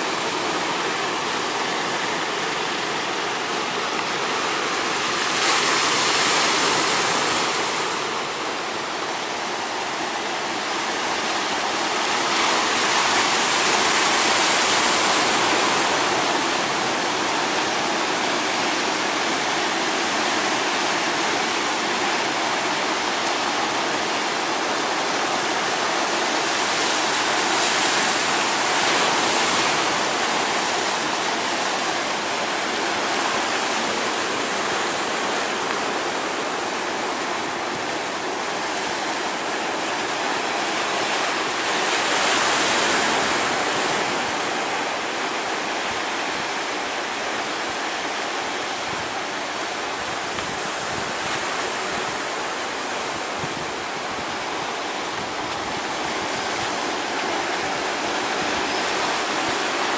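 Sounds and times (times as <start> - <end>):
ocean waves breaking: 0.0 - 59.9.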